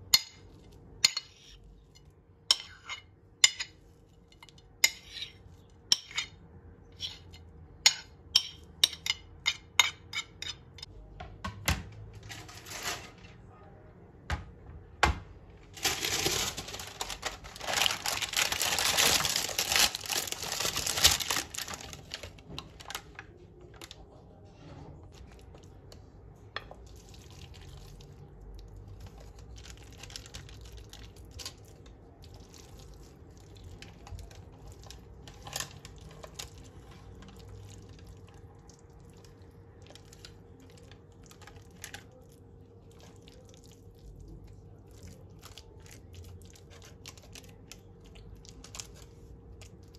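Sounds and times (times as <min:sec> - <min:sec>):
baking paper rustling: 0:12.1 - 0:13.5, 0:15.6 - 0:25.3.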